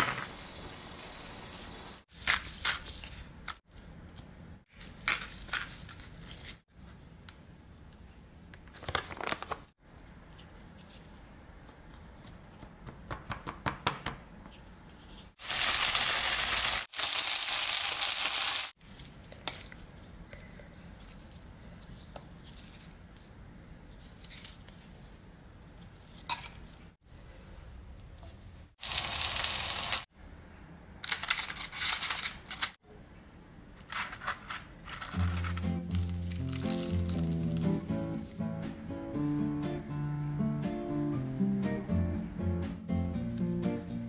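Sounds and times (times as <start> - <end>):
food sizzling in a pan: 0.0 - 2.0, 15.4 - 18.8, 28.8 - 30.1
cooking utensils clicking and scraping: 33.9 - 35.8.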